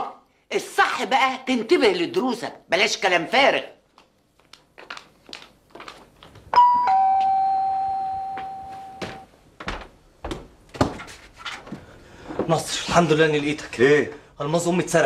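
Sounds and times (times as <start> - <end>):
two-tone doorbell chime: 6.6 - 9.2.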